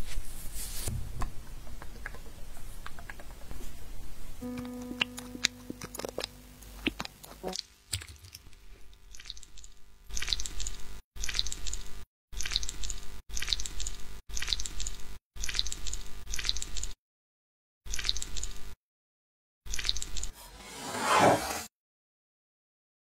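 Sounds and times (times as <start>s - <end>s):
liquid dripping: 9.1s - 11.8s.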